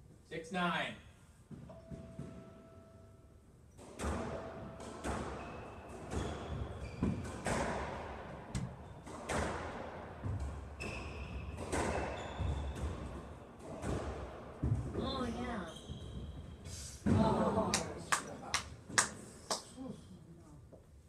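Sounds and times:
shoes squeaking on court floor: 5.0s - 7.8s, 10.7s - 14.1s, 14.9s - 16.7s.

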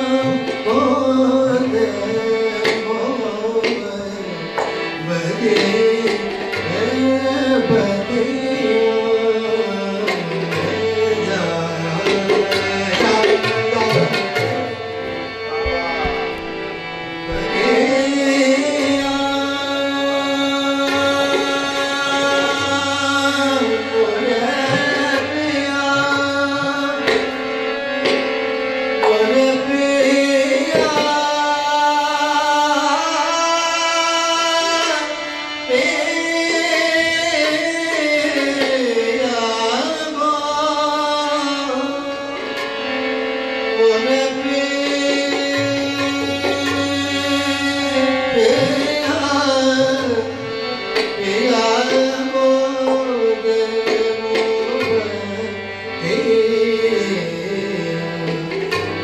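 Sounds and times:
man singing: 0.0s - 14.8s, 17.3s - 28.1s, 29.0s - 42.9s, 43.7s - 59.0s
tabla strokes: 0.0s - 31.9s, 43.8s - 59.0s
harmonium chords: 0.0s - 59.0s.

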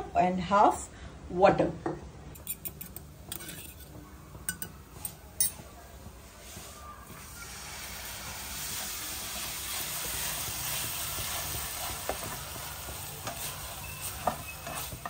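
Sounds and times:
liquid sizzling in a hot pan: 6.2s - 15.0s.

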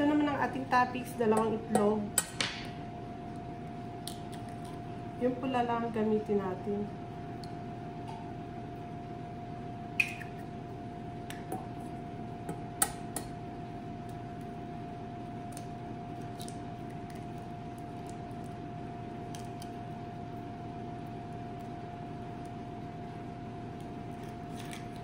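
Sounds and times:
steady hum: 0.0s - 25.0s.

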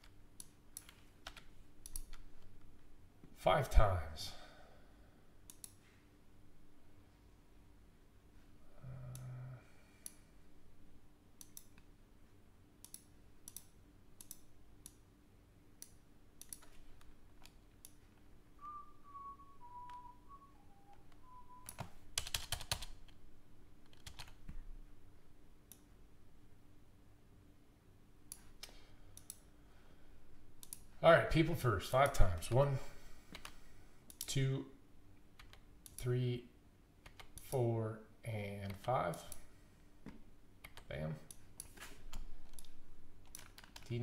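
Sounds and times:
keyboard typing: 0.0s - 2.6s, 15.8s - 18.0s, 20.8s - 23.2s, 23.8s - 24.5s, 35.4s - 36.0s, 37.0s - 37.5s, 40.6s - 44.0s
computer mouse clicks: 0.4s - 2.5s, 5.5s - 5.8s, 11.4s - 11.9s, 12.8s - 15.0s, 15.8s - 18.0s, 25.7s - 25.9s, 28.3s - 29.4s, 30.6s - 30.9s, 35.4s - 36.0s, 37.0s - 37.5s, 40.6s - 43.9s.

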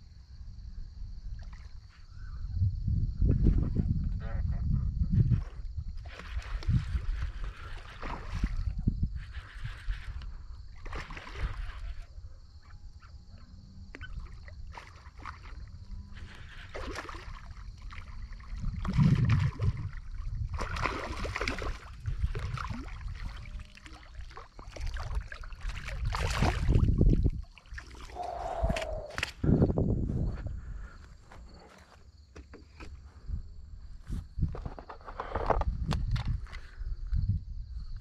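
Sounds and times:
fish splashing and thrashing: 6.0s - 8.8s, 10.7s - 12.0s, 14.0s - 29.4s
loud splash of fish released: 20.6s - 23.1s.

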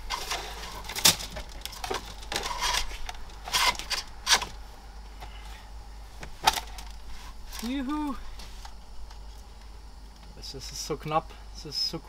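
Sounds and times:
cable rustling and scraping: 0.0s - 4.6s, 6.2s - 9.5s.

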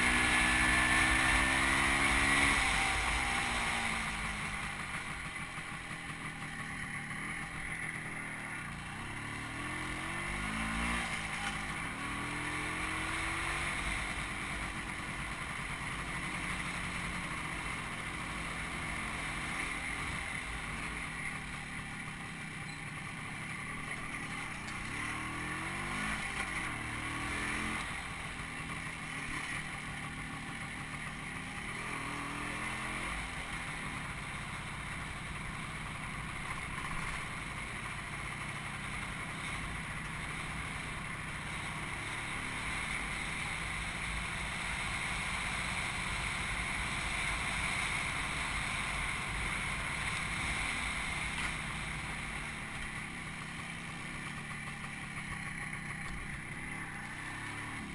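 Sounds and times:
vehicle engine revving: 0.0s - 5.8s, 8.7s - 21.0s, 24.0s - 30.0s
road and wind noise: 0.0s - 57.9s.

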